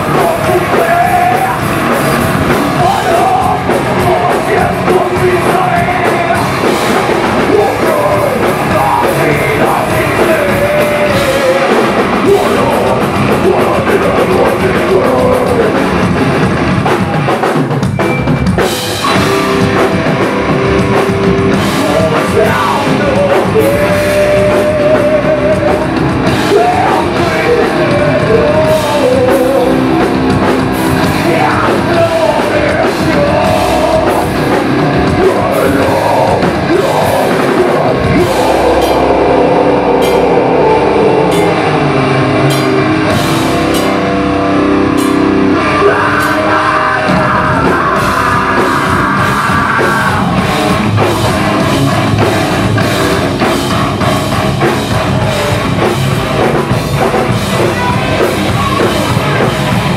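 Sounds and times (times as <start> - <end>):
heavy metal band playing: 0.0 - 59.9
screamed vocals: 45.6 - 50.4.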